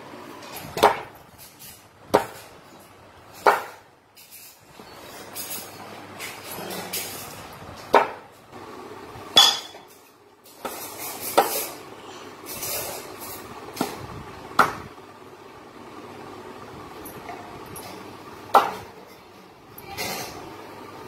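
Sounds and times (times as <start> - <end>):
knife chopping on wooden block: 0.7 - 1.1, 2.1 - 2.5, 3.4 - 3.8, 7.9 - 8.2.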